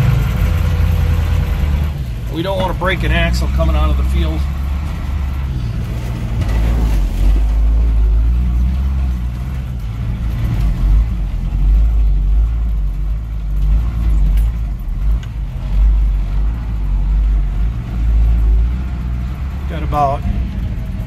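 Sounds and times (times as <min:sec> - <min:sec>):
truck engine droning: 0:00.0 - 0:21.0.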